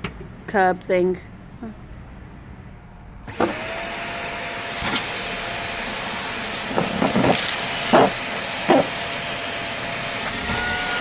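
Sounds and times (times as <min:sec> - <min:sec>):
vacuum cleaner motor whining: 0:03.3 - 0:11.0
dirt rattling in vacuum hose: 0:06.7 - 0:09.0.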